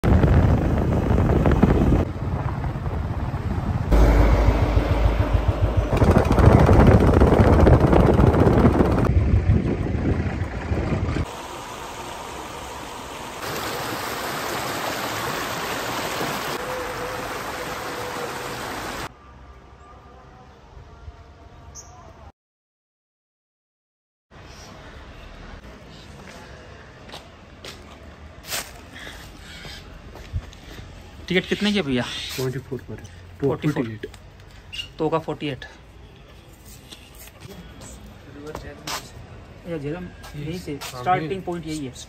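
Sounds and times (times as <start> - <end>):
wind rush: 0.0 - 11.3
outdoor ambience: 0.0 - 22.3, 24.3 - 42.0
motorcycle engine rumbling: 2.2 - 11.3.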